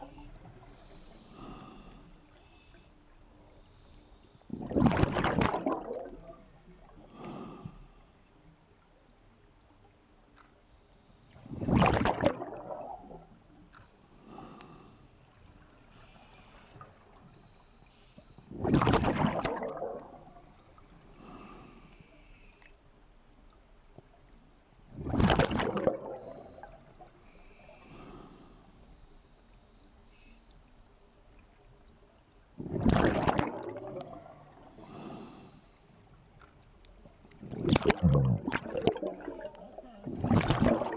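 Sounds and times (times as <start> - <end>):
exhaled bubbles rushing underwater: 4.5 - 6.4, 11.4 - 13.4, 18.5 - 20.6, 24.9 - 27.0, 32.6 - 34.7, 37.4 - 40.9.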